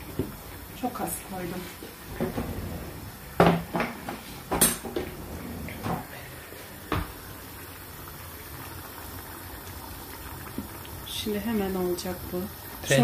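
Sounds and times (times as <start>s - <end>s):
sauce simmering hiss: 6.0s - 13.0s.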